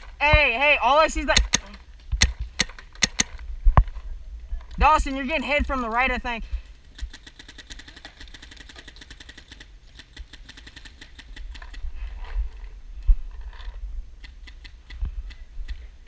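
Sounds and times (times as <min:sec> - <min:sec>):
paintball markers popping: 0:01.3 - 0:03.4.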